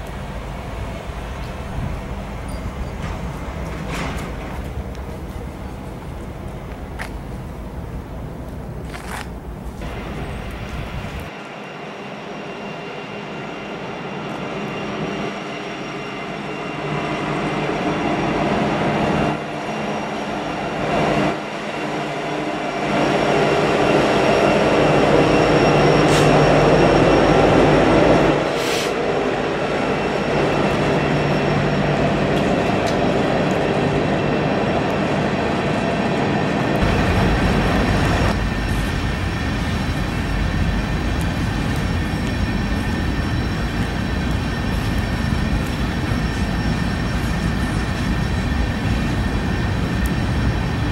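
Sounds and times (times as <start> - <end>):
diesel locomotive deep rumble: 0.0 - 11.5, 23.5 - 50.9
freight train rolling past: 0.0 - 50.9.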